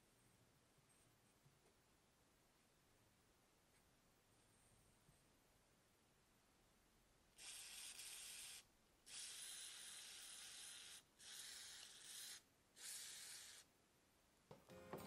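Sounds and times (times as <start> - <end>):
aerosol spray can hissing: 7.4 - 13.7.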